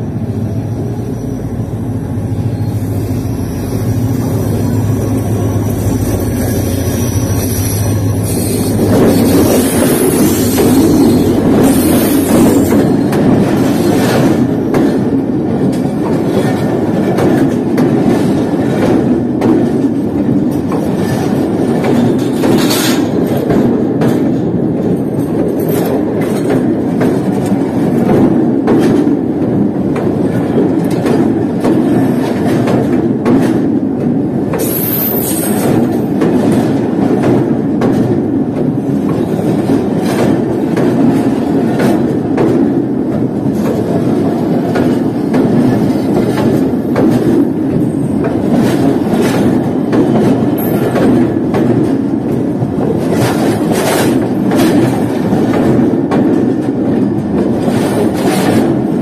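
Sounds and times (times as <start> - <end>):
train wheels rumbling on rails: 0.0 - 59.0
wheels clacking over rail joints: 0.0 - 59.0
high screech: 0.9 - 12.7.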